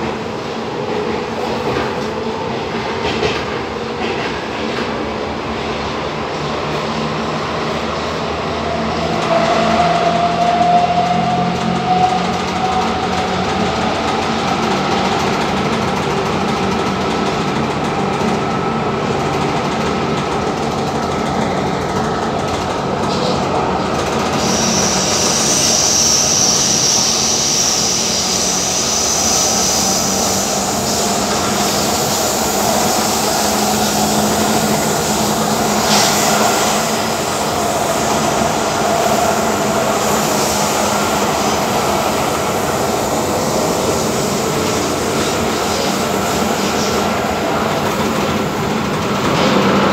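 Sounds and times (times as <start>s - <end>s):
electric train rumbling: 0.0s - 49.9s
train motor whine: 24.0s - 49.8s
high-pitched squeal: 24.3s - 47.7s.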